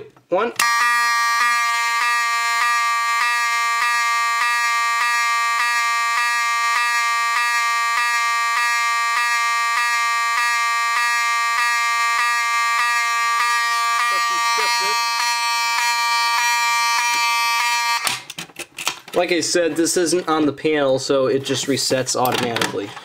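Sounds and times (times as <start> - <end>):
harsh buzzing alarm horn: 0.6 - 18.2.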